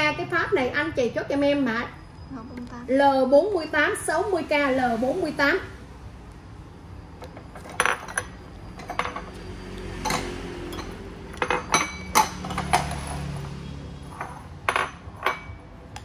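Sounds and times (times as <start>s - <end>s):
ceramic dishes clinking: 7.2s - 9.4s, 10.0s - 13.2s, 14.1s - 15.7s.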